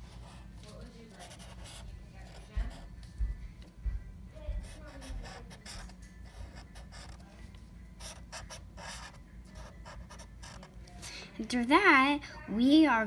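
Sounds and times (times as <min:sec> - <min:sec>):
marker drawing on paper: 0:01.1 - 0:02.9, 0:04.6 - 0:07.3, 0:08.0 - 0:10.7.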